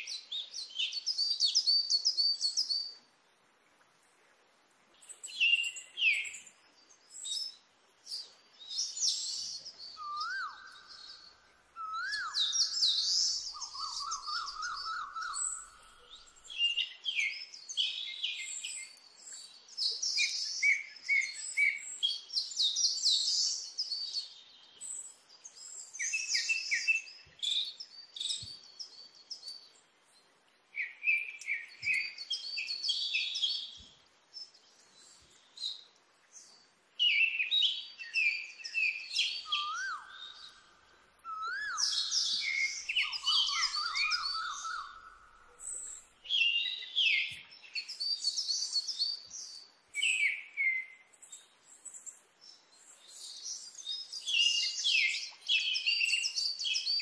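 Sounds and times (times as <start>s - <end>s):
low whistled bird call: 9.1s - 18.9s, 37.0s - 48.9s
birds chirping: 30.8s - 57.0s
bird trill: 41.3s - 49.0s.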